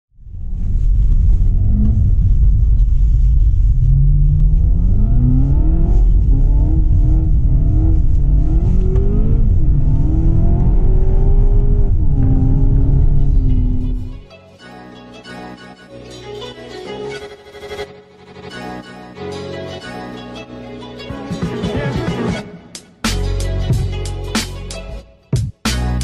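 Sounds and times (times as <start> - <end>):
car engine revving: 0.3 - 14.3.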